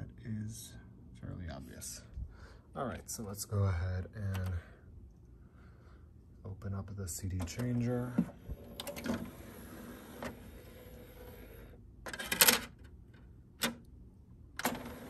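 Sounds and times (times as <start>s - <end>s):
tray motor whirring: 8.4s - 12.4s, 14.6s - 15.0s.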